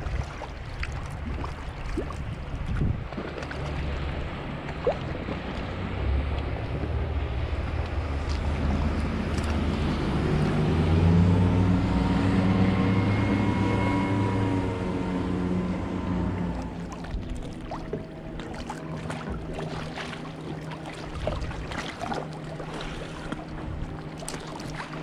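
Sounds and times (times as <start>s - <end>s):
motorboat engine droning: 0.0s - 25.0s
river water flowing: 0.0s - 25.0s
wind noise on microphone: 1.0s - 5.4s.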